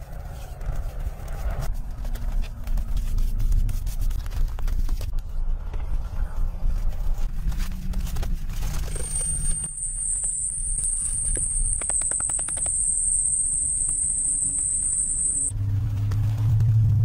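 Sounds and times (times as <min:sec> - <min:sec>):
high-pitched insect buzz: 0:08.9 - 0:15.5
low rumble: 0:13.5 - 0:17.0.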